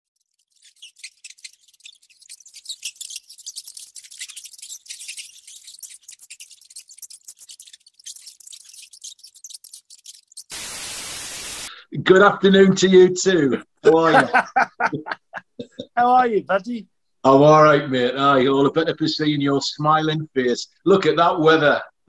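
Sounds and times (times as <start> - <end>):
rat scrabbling through dry leaves: 0.1 - 11.7.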